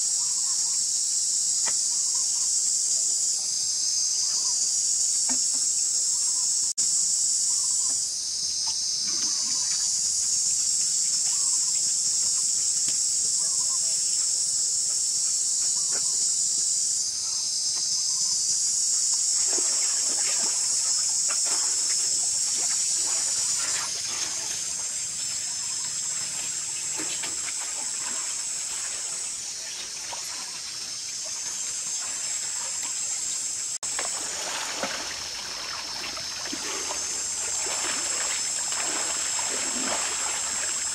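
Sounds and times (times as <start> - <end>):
high-pitched insect chorus: 0.0 - 40.9
water sloshing and splashing: 19.4 - 40.9.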